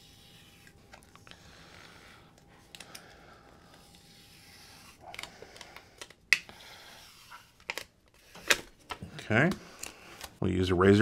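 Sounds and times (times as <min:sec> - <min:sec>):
plastic crinkles and clicks: 0:05.1 - 0:06.4, 0:07.6 - 0:10.3.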